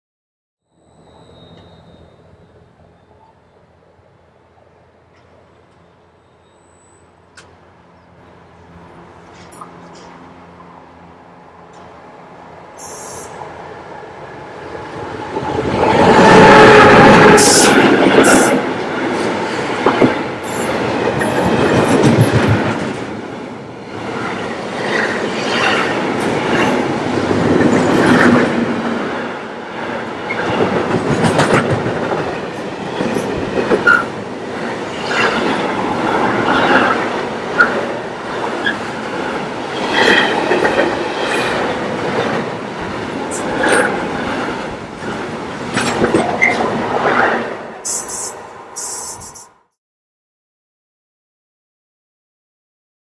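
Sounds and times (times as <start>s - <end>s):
high wheel squeals: 0.7s - 3.7s, 5.8s - 7.2s
train wheels clattering on rails: 14.9s - 29.2s, 29.8s - 47.3s.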